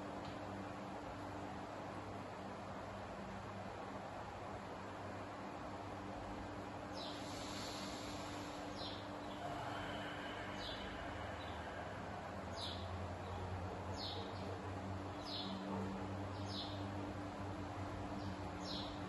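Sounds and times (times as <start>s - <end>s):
bird chirping: 8.7s - 9.5s, 12.5s - 14.4s, 15.2s - 15.6s, 16.3s - 16.8s, 18.2s - 19.0s.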